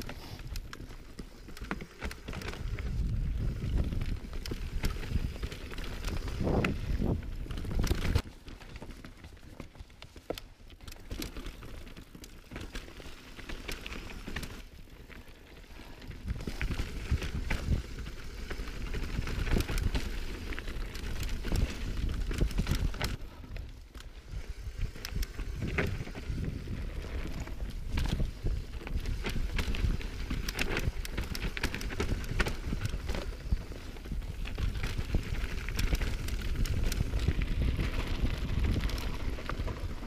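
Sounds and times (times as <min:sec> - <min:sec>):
bike tyres crunching over rock: 0:00.0 - 0:40.0
wind rumbling on microphone: 0:02.0 - 0:08.2, 0:16.0 - 0:40.0.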